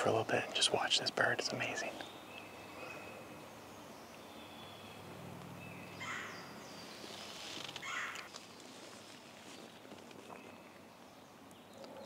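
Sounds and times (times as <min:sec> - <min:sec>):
high songbird calls: 0:01.4 - 0:08.7, 0:09.5 - 0:12.0
owl hooting faintly: 0:06.0 - 0:06.6
brief rustles: 0:07.0 - 0:10.6.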